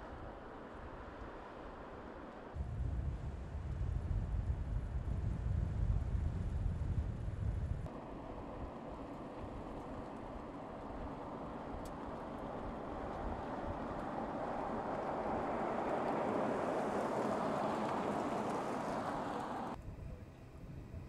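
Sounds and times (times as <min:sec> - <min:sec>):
tyre and wind noise: 0:02.5 - 0:07.9
car driving past at speed: 0:11.3 - 0:19.8.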